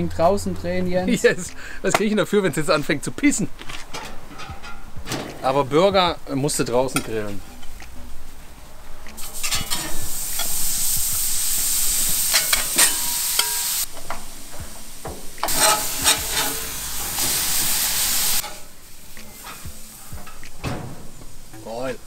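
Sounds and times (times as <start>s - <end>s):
burger patties sizzling on griddle: 9.2s - 20.6s.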